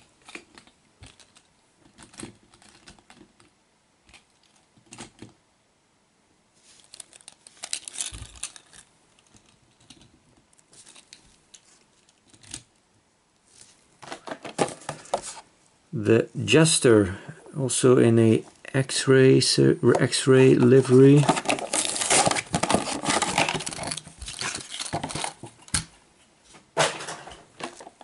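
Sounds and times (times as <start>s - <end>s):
dense clatter of toys: 6.8s - 10.1s, 14.0s - 15.4s, 21.0s - 25.8s, 26.8s - 28.0s
toy trucks clicking and clacking: 6.9s - 10.1s.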